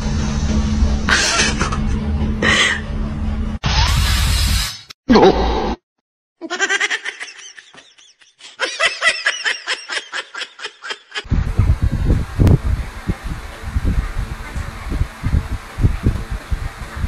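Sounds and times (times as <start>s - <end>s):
person giggling: 1.1s - 2.9s, 6.4s - 11.3s.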